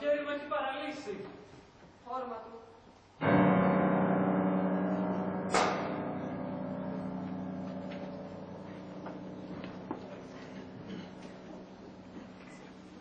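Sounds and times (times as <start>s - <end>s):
sharp bright metallic hit: 5.4s - 8.1s.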